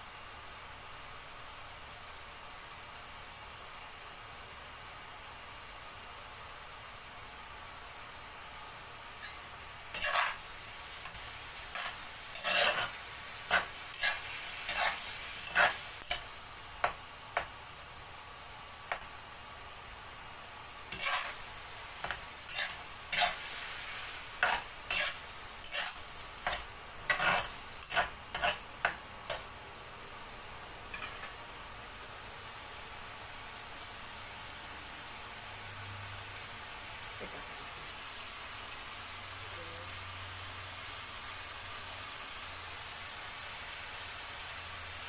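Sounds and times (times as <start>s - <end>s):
food sizzling: 0.0s - 45.0s
metal spatula scraping a wok: 9.2s - 17.5s, 20.9s - 29.4s, 30.9s - 31.3s.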